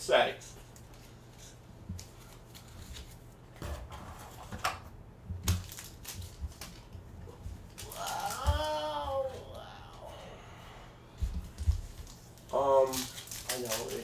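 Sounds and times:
foil wrappers rustling: 0:05.4 - 0:09.5, 0:11.6 - 0:14.0.

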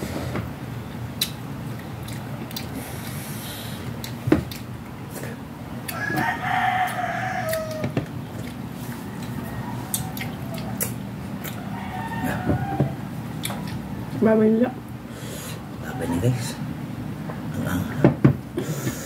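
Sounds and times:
rooster crowing: 0:05.9 - 0:08.1, 0:08.8 - 0:10.8, 0:11.4 - 0:13.2.

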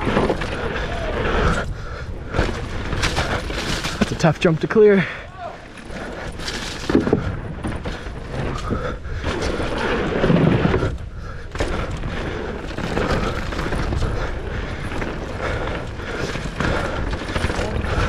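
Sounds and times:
wind buffeting microphone: 0:00.0 - 0:04.2
bike clattering on rough ground: 0:00.0 - 0:18.0
bike tyre noise: 0:00.0 - 0:18.0.

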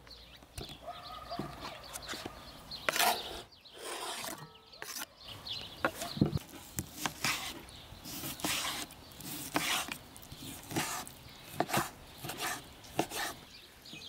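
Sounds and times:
knife scraping cutting board: 0:02.9 - 0:05.1, 0:05.9 - 0:13.4.

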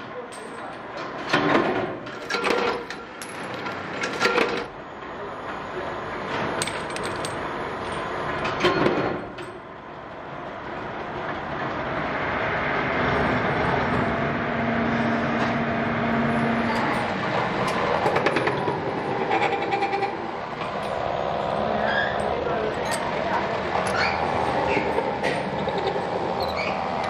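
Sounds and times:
workshop machinery running: 0:00.0 - 0:27.0
metallic clatter and knocks: 0:16.8 - 0:21.1.

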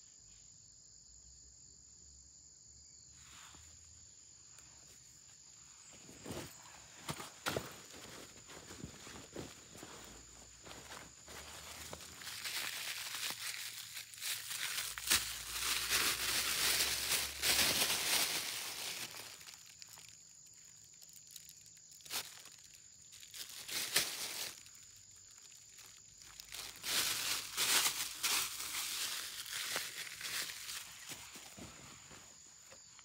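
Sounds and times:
plastic bag crinkling: 0:07.4 - 0:31.7.

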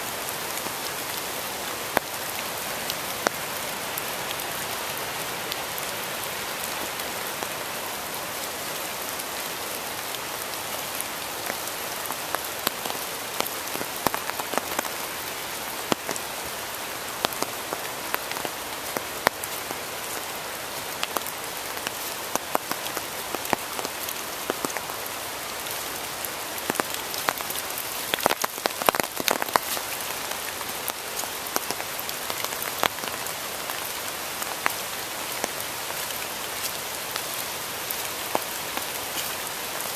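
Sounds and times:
steady rain hiss: 0:00.0 - 0:39.9
raindrop hits: 0:26.6 - 0:30.0.

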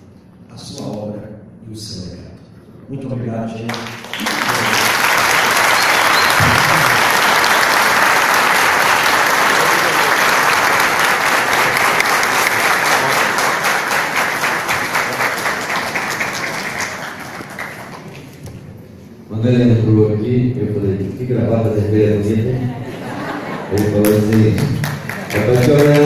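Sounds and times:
audience applauding: 0:03.7 - 0:18.4, 0:23.1 - 0:26.0.

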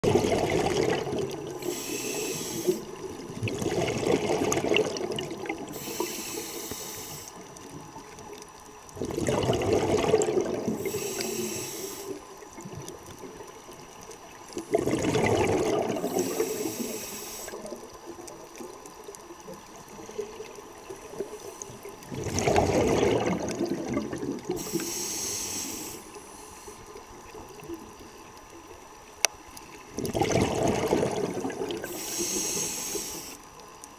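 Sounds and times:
exhaled bubbles rushing: 0:00.0 - 0:05.8, 0:08.9 - 0:11.3, 0:14.4 - 0:24.9, 0:29.8 - 0:32.4
regulator hiss on inhale: 0:01.5 - 0:03.2, 0:05.6 - 0:08.1, 0:10.6 - 0:12.4, 0:15.9 - 0:18.0, 0:21.0 - 0:22.0, 0:24.4 - 0:27.3, 0:31.8 - 0:33.7.

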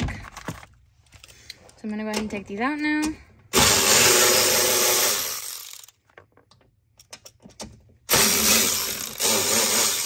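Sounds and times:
electric ratchet spinning: 0:03.5 - 0:05.9, 0:08.1 - 0:10.0.

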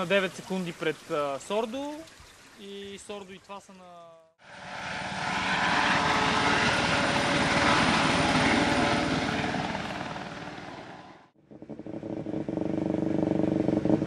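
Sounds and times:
helicopter rotor chopping: 0:04.4 - 0:14.0.

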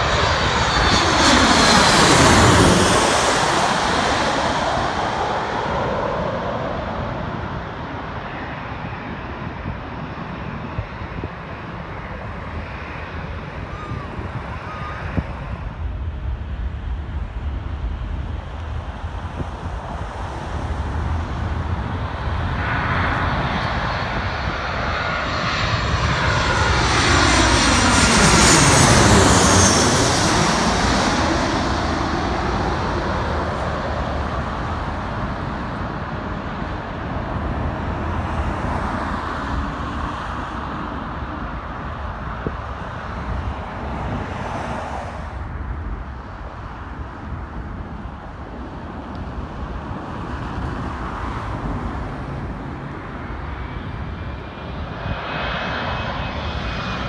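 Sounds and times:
high engine whine: 0:00.0 - 0:42.8
jet airliner engines roaring: 0:00.0 - 0:57.0.

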